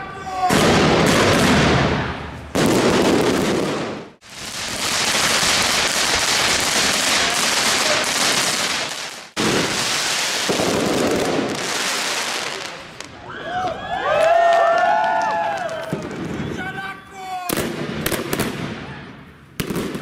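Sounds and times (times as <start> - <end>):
fireworks crackling: 0.0 - 13.2, 19.4 - 20.0.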